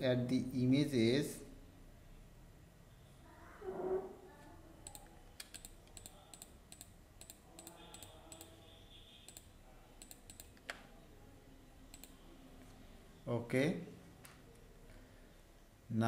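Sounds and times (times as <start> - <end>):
computer mouse clicking: 4.8 - 8.6, 9.3 - 10.9, 11.9 - 12.2.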